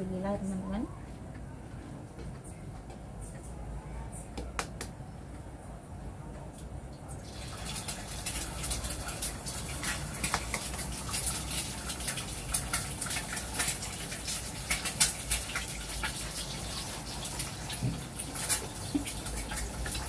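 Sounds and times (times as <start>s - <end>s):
oil sizzling in a wok: 7.2s - 20.0s.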